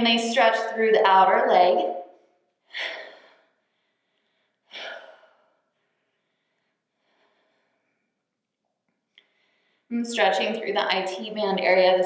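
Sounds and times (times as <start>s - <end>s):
woman breathing: 2.4s - 8.4s, 9.0s - 9.9s.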